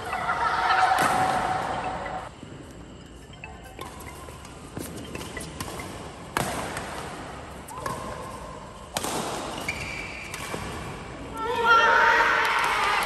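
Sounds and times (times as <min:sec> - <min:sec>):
badminton racket hitting shuttlecock: 0:04.8 - 0:10.9
shoe squeaks on court: 0:09.5 - 0:10.4.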